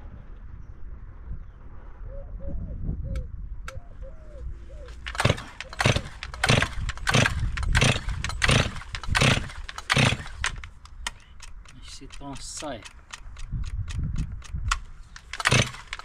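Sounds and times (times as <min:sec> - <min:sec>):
chainsaw starter rope pulls: 0:04.9 - 0:16.0.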